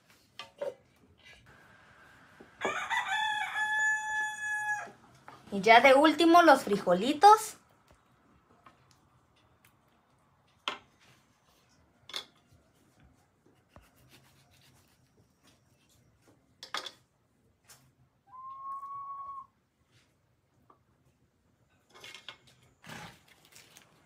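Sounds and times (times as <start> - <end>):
short whistle-like tone: 18.3 - 19.6.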